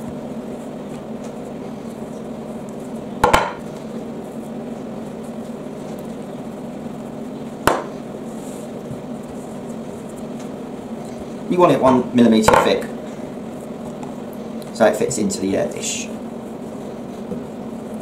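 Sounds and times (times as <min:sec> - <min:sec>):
rolling pin on pastry: 0:00.0 - 0:14.2
steady hum: 0:00.0 - 0:18.0
rolling pin knocking on worktop: 0:03.2 - 0:03.6, 0:07.6 - 0:07.9.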